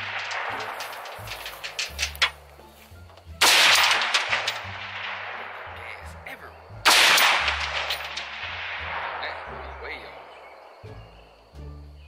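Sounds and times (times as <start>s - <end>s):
rifle shots with echo: 0.0s - 2.0s, 3.4s - 6.0s, 6.8s - 9.6s.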